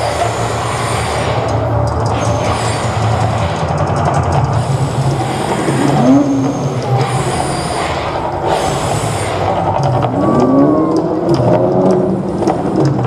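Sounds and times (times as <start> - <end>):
deep continuous rumble: 0.0 - 13.0
gas fire jets rushing: 0.0 - 13.0
gliding tones: 0.0 - 13.0.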